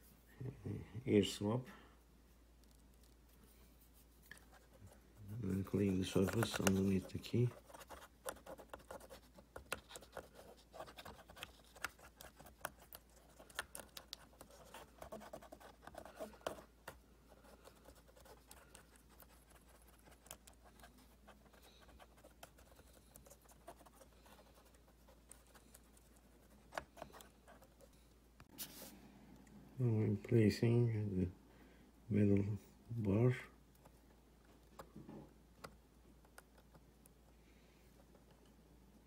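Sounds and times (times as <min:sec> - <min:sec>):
cotton swab scrubbing: 0:02.6 - 0:27.9.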